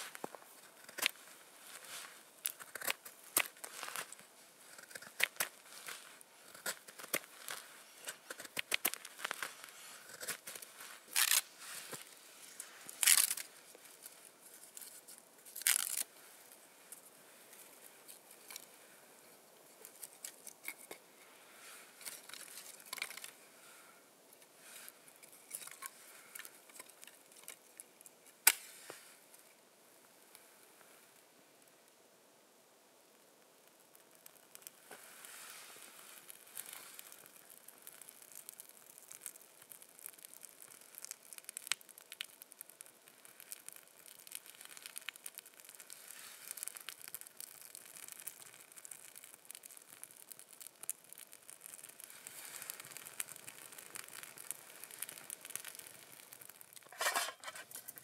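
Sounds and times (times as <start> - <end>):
knife scraping wooden stick: 56.8 - 58.0.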